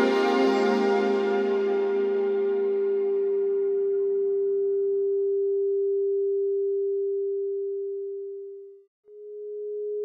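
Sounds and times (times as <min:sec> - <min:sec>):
faint higher musical layers: 0:00.0 - 0:04.0
steady sine tone: 0:00.0 - 0:10.0.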